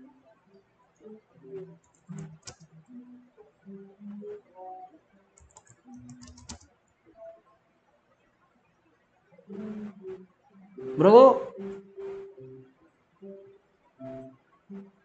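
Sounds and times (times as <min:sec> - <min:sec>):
computer keyboard typing: 0:01.8 - 0:02.7, 0:05.4 - 0:06.7.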